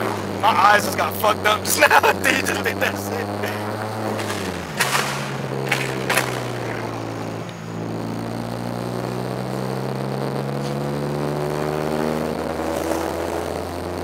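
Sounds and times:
car engine droning inside cabin: 0.0s - 14.0s.

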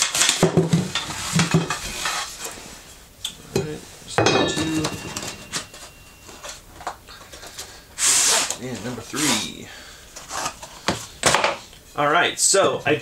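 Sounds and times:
metal rails clinking and rattling: 4.2s - 6.5s.

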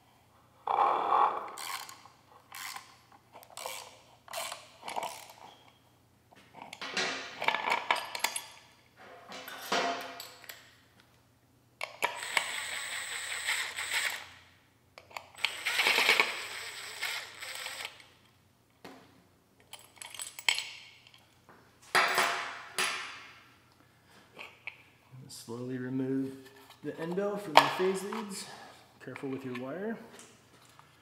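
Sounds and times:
ratchet wrench clicking: 1.6s - 2.9s, 3.5s - 5.4s, 11.9s - 14.3s.

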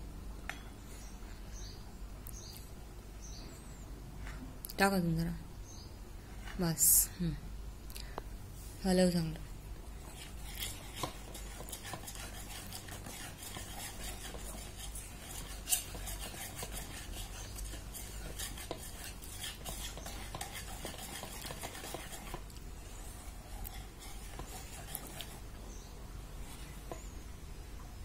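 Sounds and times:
whisk scraping metal bowl: 10.0s - 25.6s, 26.4s - 27.1s.

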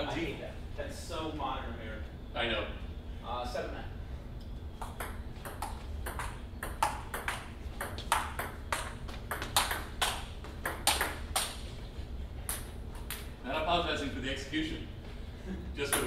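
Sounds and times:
ping pong ball hitting paddles: 4.8s - 11.6s, 12.4s - 13.3s, 15.8s - 16.0s.

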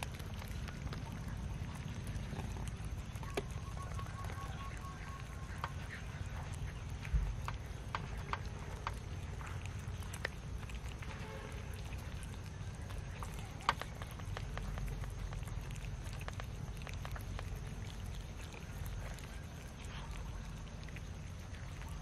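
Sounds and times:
cats chewing and smacking: 0.0s - 22.0s
low steady rumble: 0.0s - 22.0s
sharp ticks: 0.0s - 22.0s.

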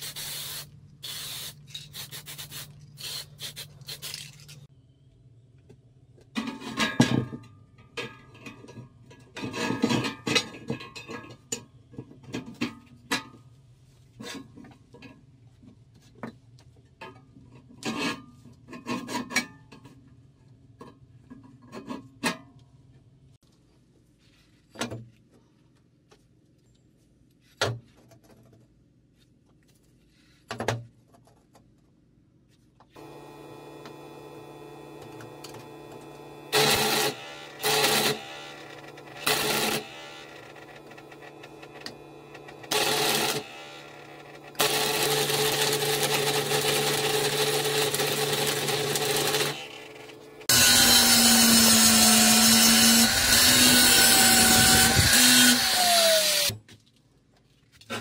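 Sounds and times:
angle grinder grinding: 33.0s - 56.5s
welder humming: 33.0s - 56.5s.

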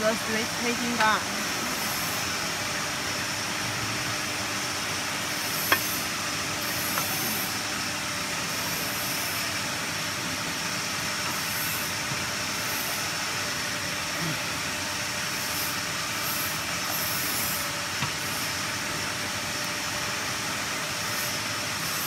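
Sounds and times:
machinery hiss: 10.9s - 13.4s.

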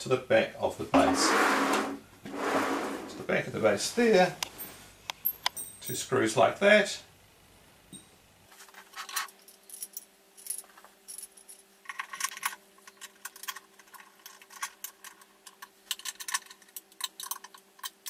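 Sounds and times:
small metallic clicks and scrapes: 8.6s - 18.0s.

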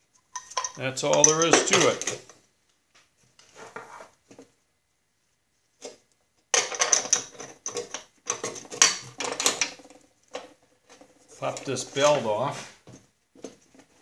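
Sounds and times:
small metal parts clinking: 0.3s - 2.3s.

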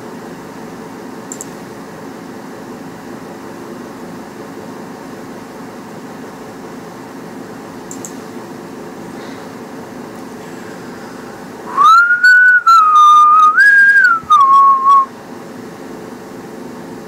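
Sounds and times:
steady low hum: 0.0s - 17.0s
person whistling: 11.7s - 15.1s.

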